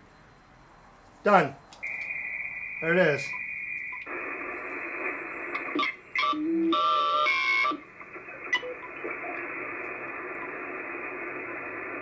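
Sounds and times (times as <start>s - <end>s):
radio band noise hiss: 0.8s - 12.0s
radio whistles and tones: 1.3s - 12.0s
short clicks: 1.7s - 2.2s.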